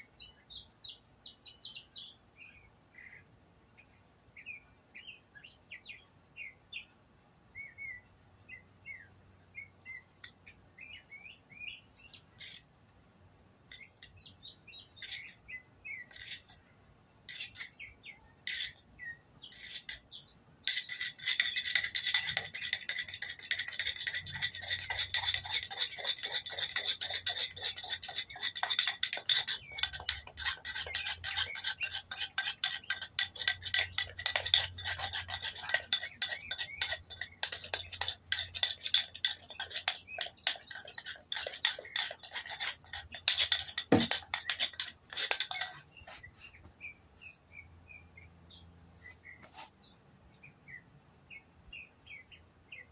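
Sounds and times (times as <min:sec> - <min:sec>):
bird chirping: 0:00.0 - 0:12.7, 0:13.7 - 0:52.9
wooden board rasping on concrete: 0:15.0 - 0:15.4, 0:16.0 - 0:16.6, 0:17.3 - 0:17.8, 0:18.4 - 0:46.3.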